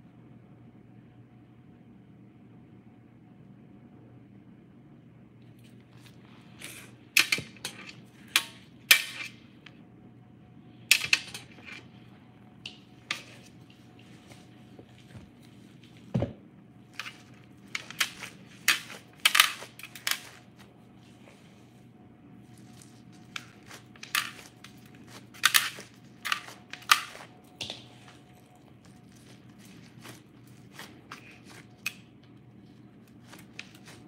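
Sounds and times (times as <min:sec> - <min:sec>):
faint steady hum: 0:00.0 - 0:34.0
plastic crinkling: 0:16.8 - 0:21.6, 0:22.4 - 0:34.0.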